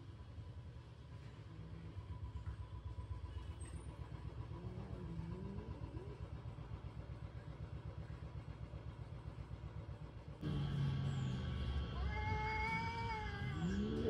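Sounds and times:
vehicle engine idling: 0:00.0 - 0:14.0
cat growling: 0:12.0 - 0:14.0
cat voice: 0:12.0 - 0:14.0.

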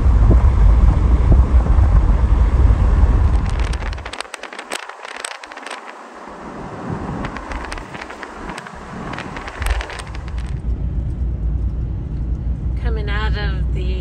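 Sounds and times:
wind buffeting microphone: 0:00.0 - 0:13.0
sharp crackles: 0:01.9 - 0:11.8.

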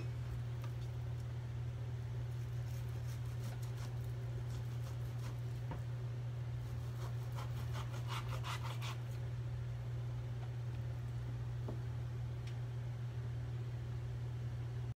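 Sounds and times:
steady low hum: 0:00.0 - 0:14.9
knife slicing meat on cutting board: 0:06.6 - 0:09.2.

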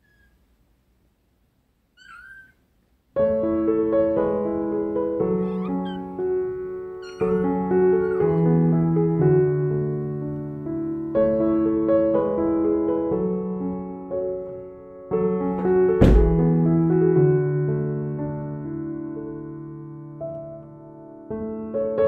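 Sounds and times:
kitten meowing: 0:00.0 - 0:00.4, 0:02.0 - 0:02.6, 0:05.1 - 0:08.7
piano music: 0:03.2 - 0:22.0.

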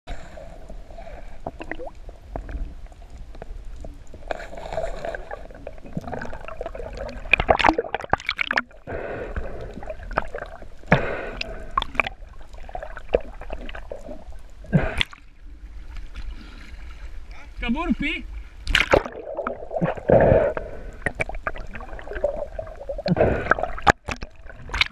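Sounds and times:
muffled underwater sloshing: 0:00.1 - 0:24.9
knocks and clicks underwater: 0:01.4 - 0:08.8, 0:09.4 - 0:15.2, 0:18.6 - 0:24.9.

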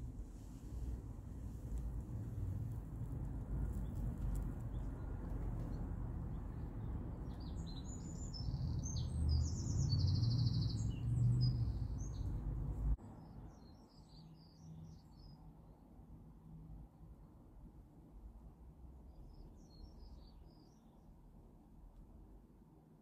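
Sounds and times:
steady low rumble: 0:00.0 - 0:13.0
small birds chirping: 0:03.6 - 0:15.4.

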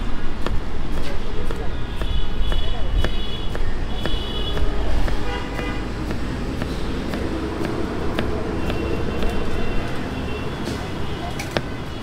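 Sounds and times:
road traffic: 0:00.0 - 0:12.0
car horns tooting: 0:01.7 - 0:07.2.

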